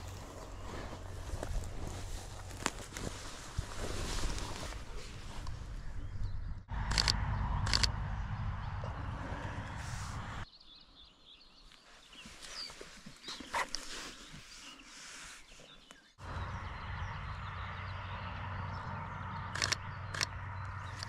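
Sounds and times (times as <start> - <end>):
sharp clicks: 6.8 - 8.0, 19.5 - 21.0.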